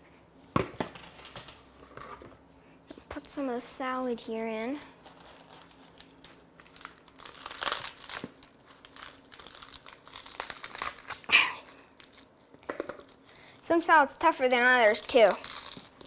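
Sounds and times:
lettuce leaves tearing: 5.0 - 12.2, 14.7 - 16.0.

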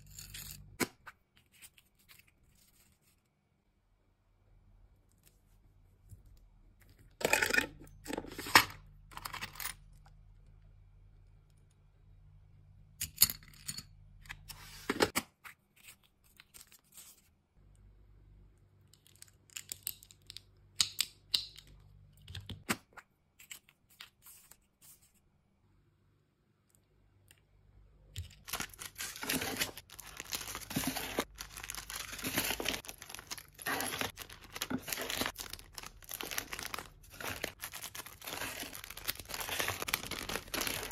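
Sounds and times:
plastic wrapping crinkling: 28.4 - 40.9.

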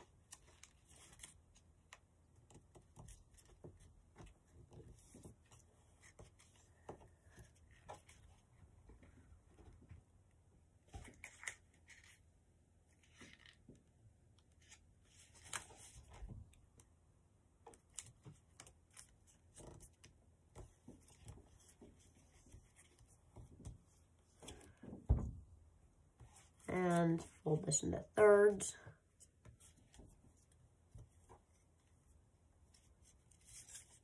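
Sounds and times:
thump: 24.9 - 25.4
paper rustling and crinkling: 32.7 - 34.0.

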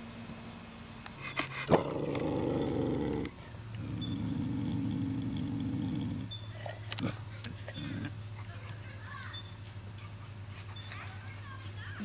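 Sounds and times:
dog making low rough sounds: 1.4 - 8.2.

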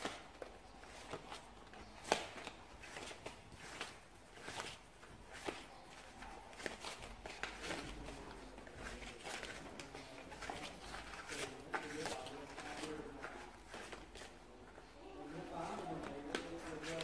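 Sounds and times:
pencil scratching on paper: 2.8 - 12.0.

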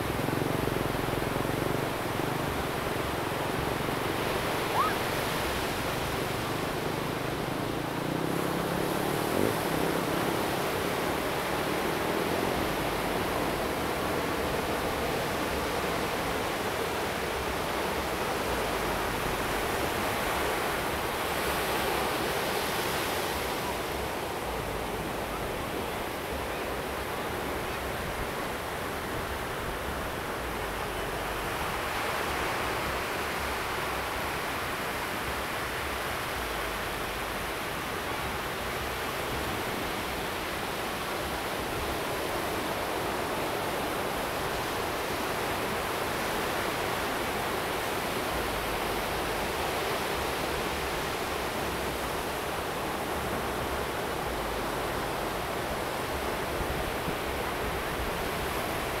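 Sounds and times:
ocean surf breaking: 0.0 - 12.5.

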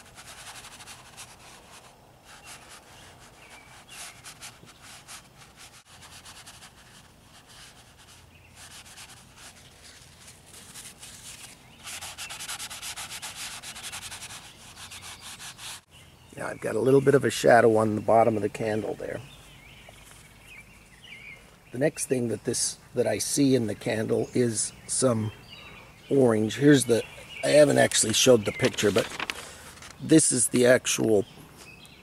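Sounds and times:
paper towel scrubbing on canvas: 0.0 - 15.9.

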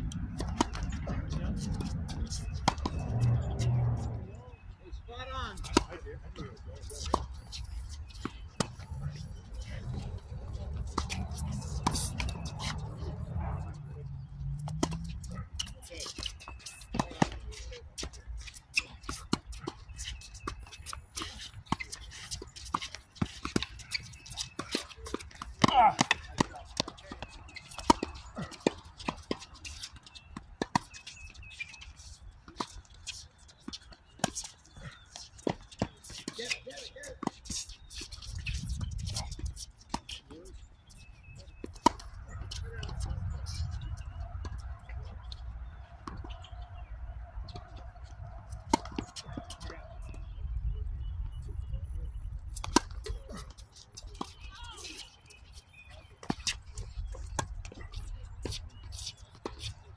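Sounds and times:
racquets striking tennis ball: 0.1 - 4.1, 10.0 - 17.4, 18.0 - 40.4, 47.5 - 49.7
footsteps on court: 5.6 - 50.5
wind rumble on microphone: 38.3 - 39.6, 42.2 - 45.7, 49.6 - 52.7.

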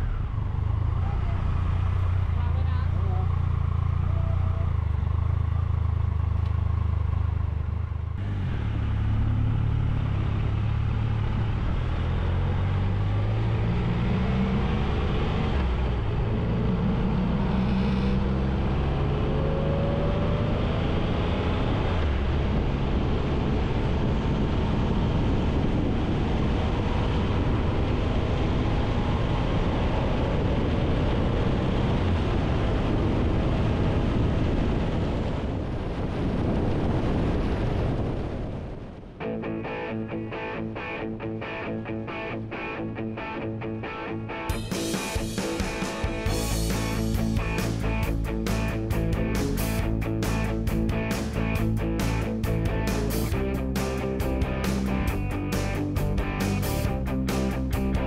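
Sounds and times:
wind rush at cruising speed: 0.0 - 43.7, 44.5 - 58.0
motorcycle engine idling and accelerating: 0.0 - 58.0.

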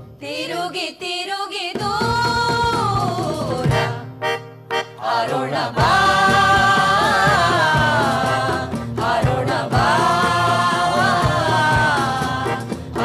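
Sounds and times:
voices singing slow theatre song: 0.0 - 13.0
low drum beats: 5.7 - 13.0.

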